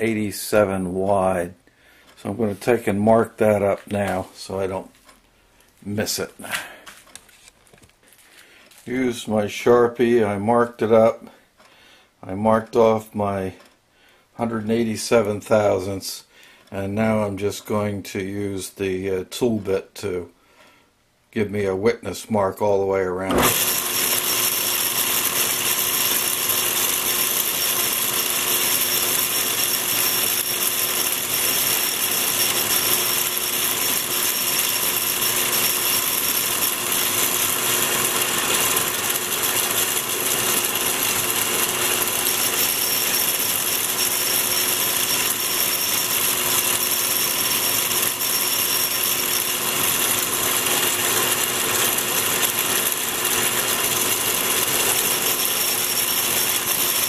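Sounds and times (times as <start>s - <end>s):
metal lathe whirring: 23.3s - 57.0s.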